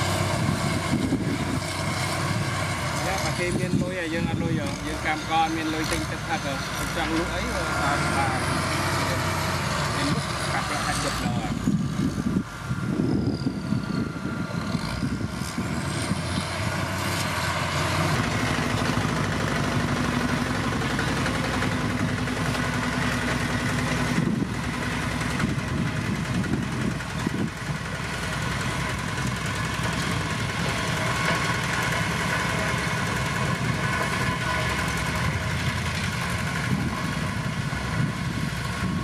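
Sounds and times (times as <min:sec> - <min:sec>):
road roller rolling over stone: 0:00.0 - 0:12.2, 0:14.0 - 0:39.0
motor grader working over stone: 0:00.0 - 0:39.0.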